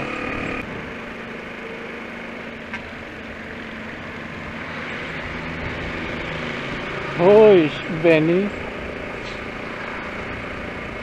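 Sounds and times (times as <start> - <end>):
small motorcycle engine running: 0.0 - 11.0.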